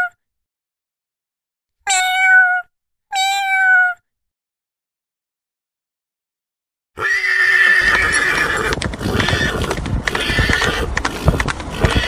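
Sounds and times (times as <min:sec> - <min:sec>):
horse whinnying: 0:07.0 - 0:12.0
hooves beating in sand: 0:07.8 - 0:12.0.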